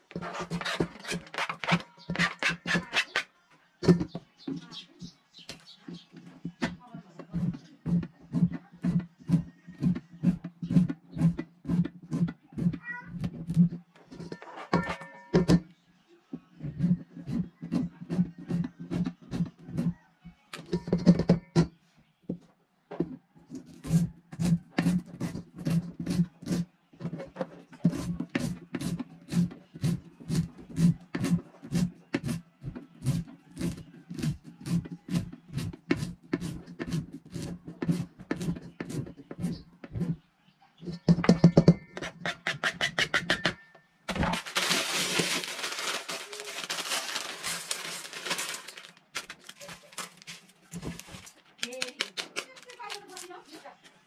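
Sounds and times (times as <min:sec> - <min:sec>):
knife chopping on cutting board: 0:27.9 - 0:40.1
plastic packet crinkling: 0:44.2 - 0:53.6.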